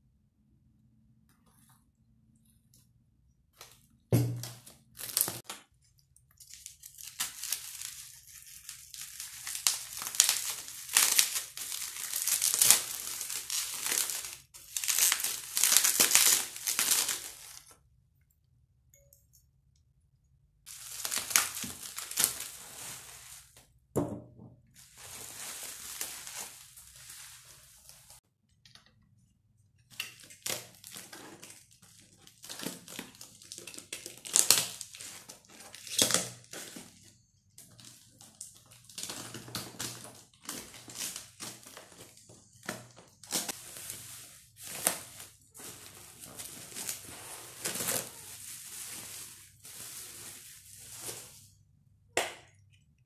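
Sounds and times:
bubble wrap crinkling: 0:04.3 - 0:05.6, 0:06.4 - 0:17.8, 0:20.7 - 0:23.8, 0:24.8 - 0:28.2, 0:30.2 - 0:51.7
knock: 0:24.0 - 0:24.6.

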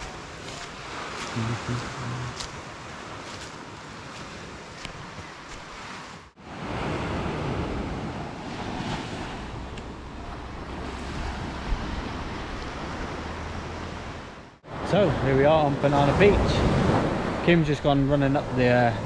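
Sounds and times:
wind buffeting microphone: 0:00.0 - 0:14.6
sea surf washing onto beach: 0:00.0 - 0:19.0.

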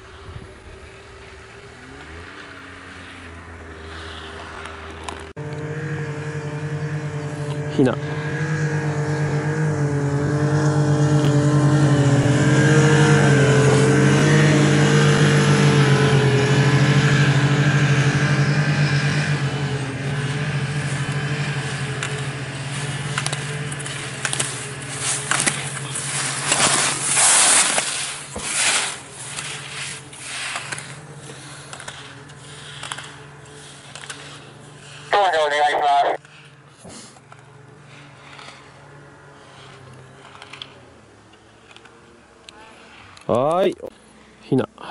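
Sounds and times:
motor hum: 0:00.0 - 0:43.3
short scraping noises: 0:23.8 - 0:35.1.

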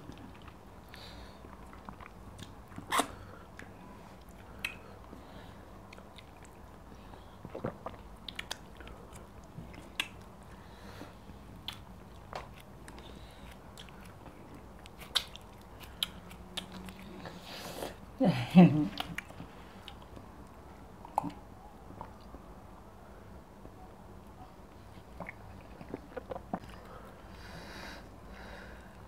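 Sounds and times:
faint steady hum: 0:00.0 - 0:29.0
wet mouth smacks and chewing: 0:01.5 - 0:04.9, 0:07.4 - 0:10.3, 0:11.6 - 0:17.1.

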